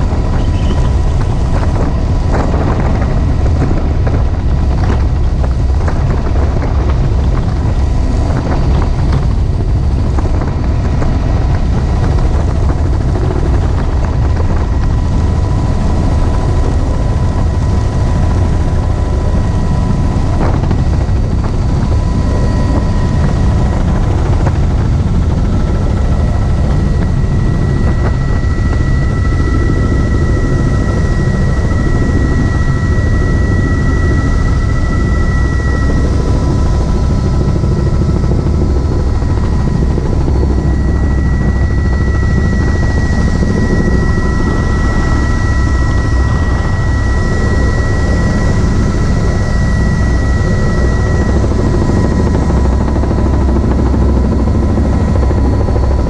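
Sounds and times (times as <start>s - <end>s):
helicopter rotor and engine: 0.0s - 56.0s
thin steady whine: 0.0s - 56.0s.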